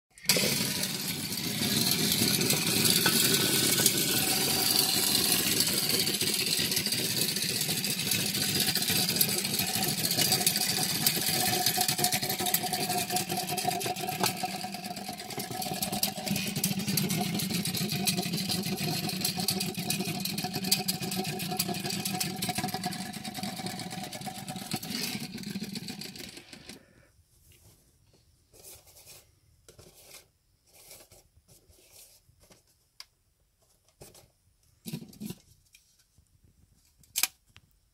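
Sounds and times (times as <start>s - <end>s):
clockwork toy whirring and clicking: 0.2s - 26.8s.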